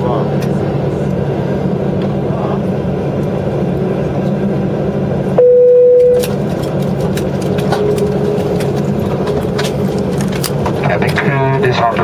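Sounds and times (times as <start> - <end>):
airliner cabin ventilation hum: 0.0 - 12.0
loud steady tone: 5.3 - 6.4, 7.7 - 10.0.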